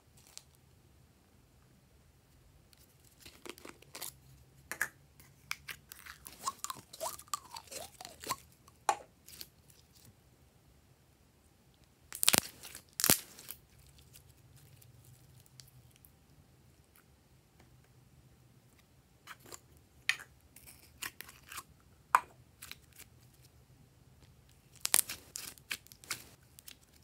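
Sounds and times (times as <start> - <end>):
slime squelching and crackling: 5.7 - 8.5, 12.2 - 16.0, 24.5 - 27.0.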